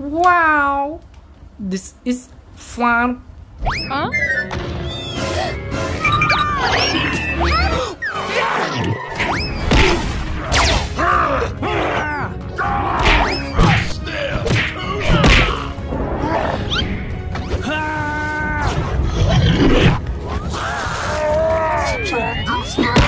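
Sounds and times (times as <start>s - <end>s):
background music: 3.0s - 23.0s
cartoon cries and squeaks: 3.7s - 9.6s, 21.2s - 23.0s
whacks and thuds: 13.0s - 15.6s.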